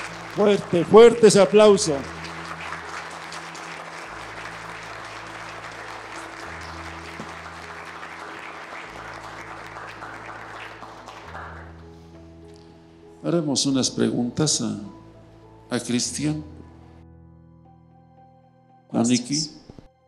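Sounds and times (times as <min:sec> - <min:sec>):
crowd applauding: 0:00.0 - 0:12.0
soft instrumental music: 0:00.0 - 0:20.0.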